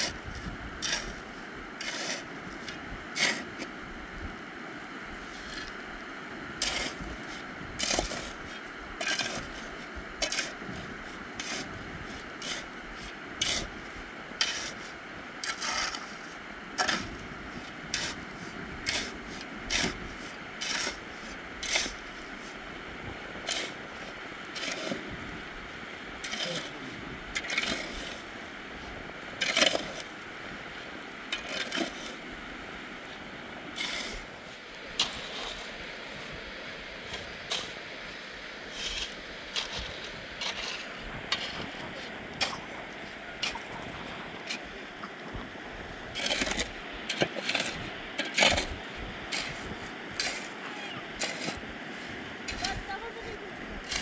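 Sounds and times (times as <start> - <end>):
short scraping strokes: 33.8 - 35.7.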